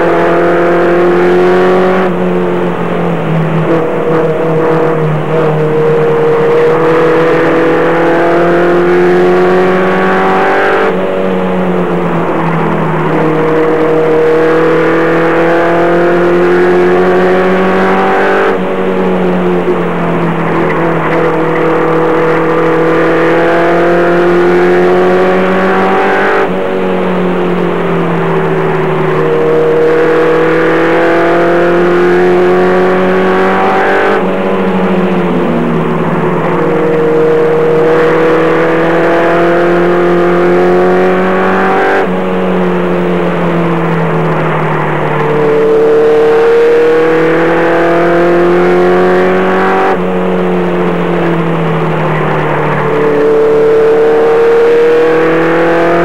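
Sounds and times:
race truck engine from inside: 0.0 - 56.0.

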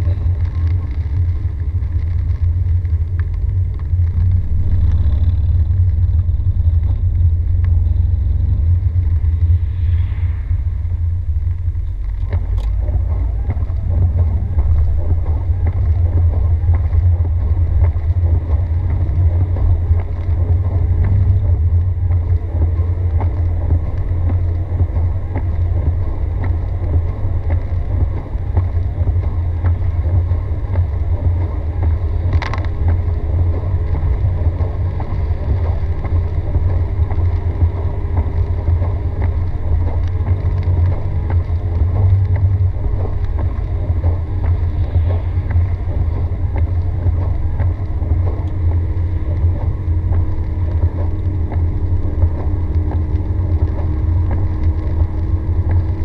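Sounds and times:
car driving on wet road: 0.0 - 56.0
faint engine tone: 0.0 - 56.0.

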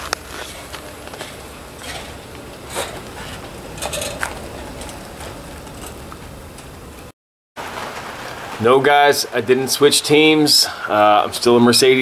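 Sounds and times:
footsteps crunching on snow: 0.0 - 6.6.

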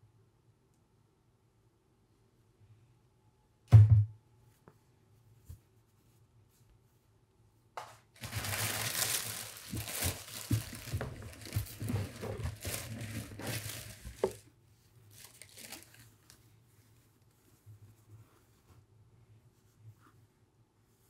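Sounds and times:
paper crinkling and rustling: 8.1 - 17.9.

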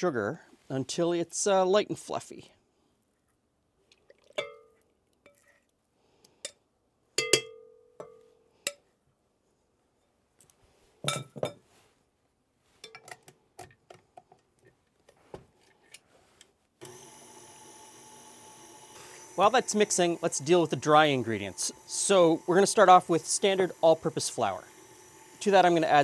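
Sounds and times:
glass bowls clinking: 4.3 - 5.4
stand mixer motor humming: 16.8 - 26.0.

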